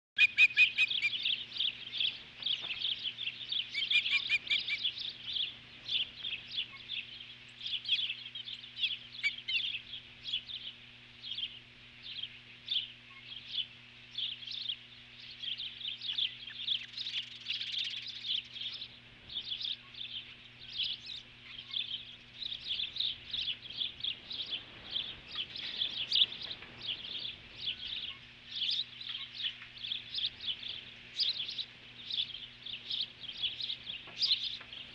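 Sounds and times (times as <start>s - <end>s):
birds whistling alarm calls: 0.2s - 34.9s
low electrical hum: 0.2s - 34.9s.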